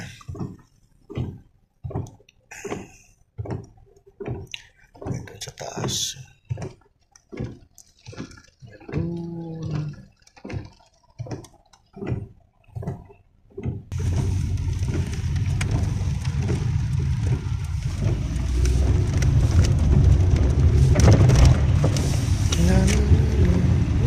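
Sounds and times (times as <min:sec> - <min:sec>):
engine and tyre rumble: 0:00.0 - 0:24.0
hiss of rain and tyre spray: 0:13.9 - 0:24.0.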